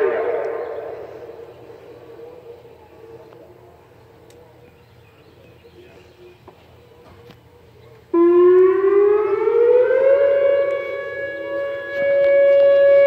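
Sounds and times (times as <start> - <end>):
outdoor warning siren: 0.0 - 4.4, 8.0 - 13.0.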